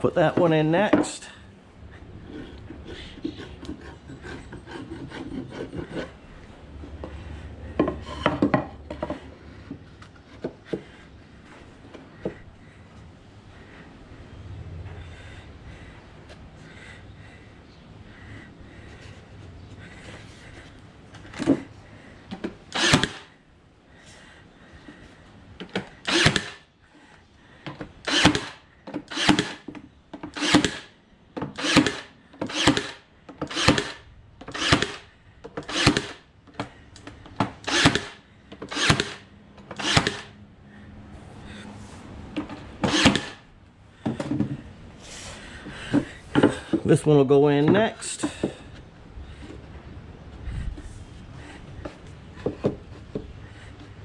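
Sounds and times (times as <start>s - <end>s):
nail gun firing: 22.7s - 23.3s, 26.0s - 26.6s, 28.0s - 29.7s, 30.3s - 30.9s, 31.5s - 35.0s, 35.6s - 36.2s, 37.5s - 40.3s, 42.8s - 43.4s.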